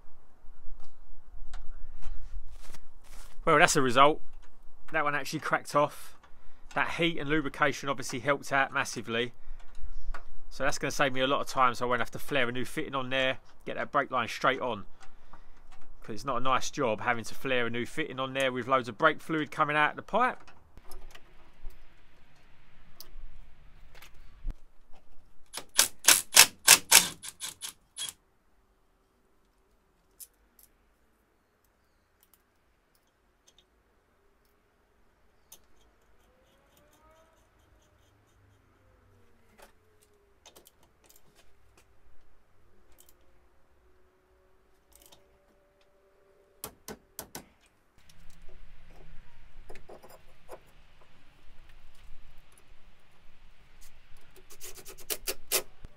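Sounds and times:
ratchet clicking: 25.6 - 28.2
faint sliding tones: 35.5 - 40.4.

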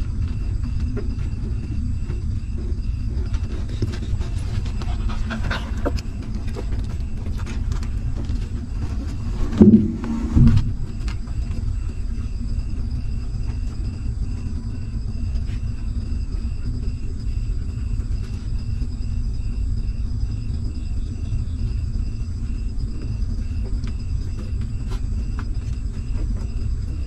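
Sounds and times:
puppies suckling and shuffling: 0.0 - 9.7
steady low rumble: 0.0 - 27.0.

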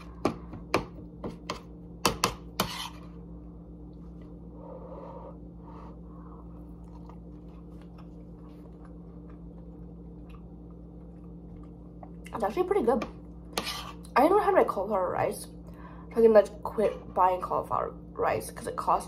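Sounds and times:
steady low hum: 0.0 - 19.0
fork scraping ceramic plate: 2.2 - 3.1, 13.6 - 14.1
person chewing: 6.5 - 12.3.

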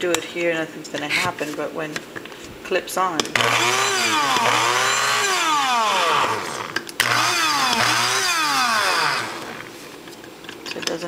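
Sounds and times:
coffee grinder motor: 3.3 - 9.8.

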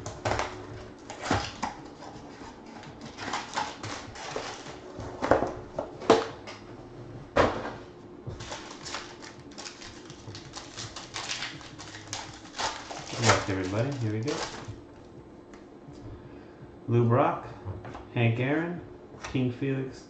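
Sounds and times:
foil packs crinkling: 0.0 - 4.9, 8.3 - 14.8.

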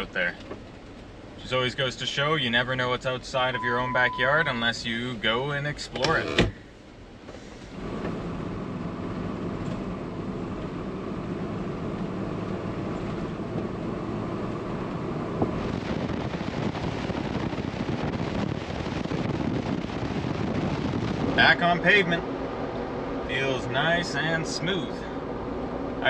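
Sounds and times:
car engine cruising: 0.0 - 26.0
wind rush and tyre noise: 7.7 - 26.0.

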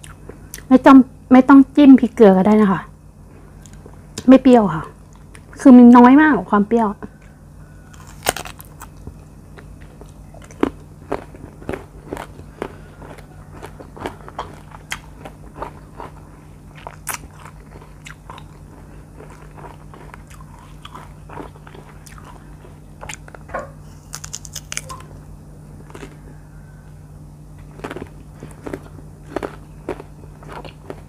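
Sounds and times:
low steady hum: 0.0 - 31.0
biting and chewing fruit: 7.0 - 31.0.

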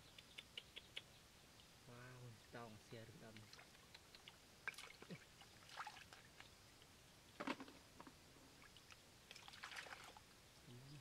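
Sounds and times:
splashing shallow water: 3.3 - 6.4, 9.3 - 10.2.

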